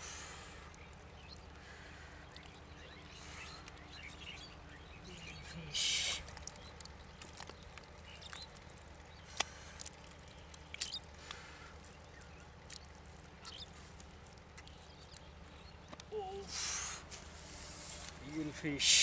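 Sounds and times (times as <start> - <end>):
hands squelching in wet mud: 6.0 - 15.4.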